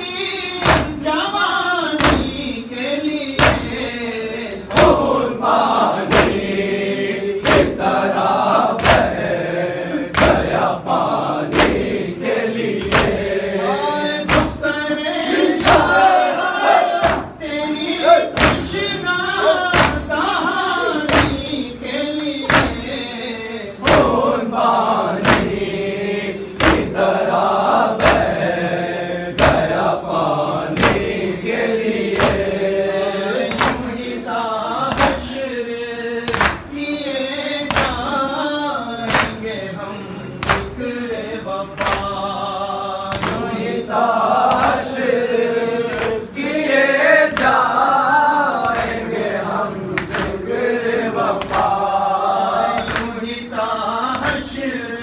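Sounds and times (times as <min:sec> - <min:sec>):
men chanting in unison: 0:00.0 - 0:55.0
palms slapping chests: 0:02.0 - 0:02.5, 0:03.4 - 0:04.0, 0:07.3 - 0:13.5, 0:14.2 - 0:14.8, 0:16.9 - 0:17.4, 0:18.2 - 0:20.4, 0:21.0 - 0:21.7, 0:22.4 - 0:23.0, 0:25.0 - 0:27.1, 0:27.8 - 0:28.5, 0:29.3 - 0:29.9, 0:30.7 - 0:32.7, 0:33.4 - 0:34.1, 0:36.3 - 0:36.8, 0:39.0 - 0:39.6, 0:40.4 - 0:41.0, 0:41.7 - 0:42.3, 0:43.1 - 0:43.7, 0:45.9 - 0:46.4, 0:48.6 - 0:49.2, 0:49.9 - 0:52.0, 0:52.7 - 0:53.2, 0:54.0 - 0:54.6.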